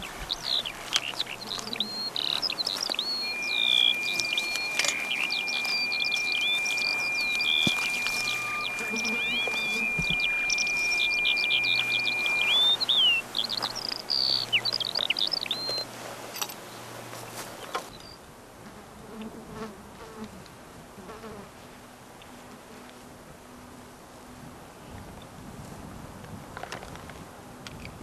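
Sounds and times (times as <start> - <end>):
flying insect buzzing: 0.0 - 15.1
birds chirping and whistling: 0.0 - 15.9.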